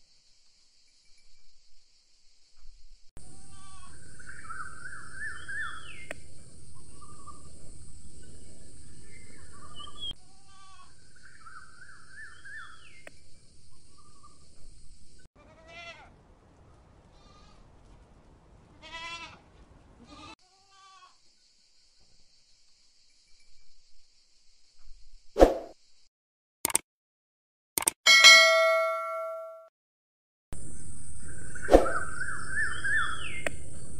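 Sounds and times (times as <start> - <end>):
outdoor background noise: 0.0 - 26.1, 30.6 - 33.9
goats bleating: 3.3 - 4.0, 18.8 - 19.4.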